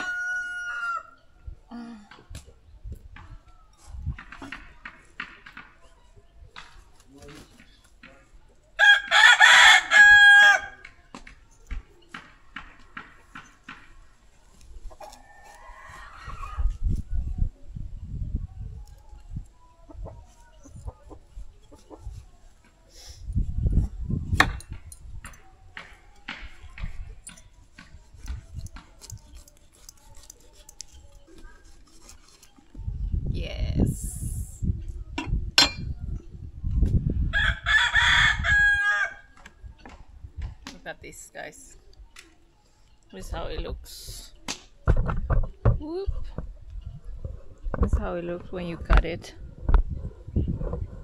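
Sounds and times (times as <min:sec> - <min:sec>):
rooster crowing: 0:00.0 - 0:01.2, 0:08.8 - 0:10.8, 0:37.4 - 0:39.3
knife cutting fruit: 0:26.3 - 0:32.9.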